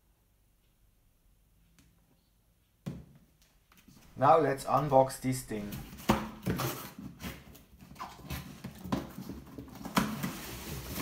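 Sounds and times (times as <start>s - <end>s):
cardboard scraping and rustling: 5.6s - 11.0s.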